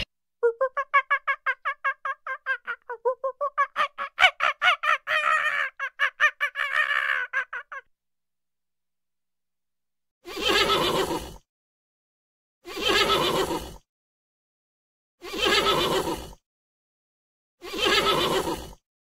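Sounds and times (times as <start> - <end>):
horse whinnying: 10.3 - 11.4, 12.7 - 13.8.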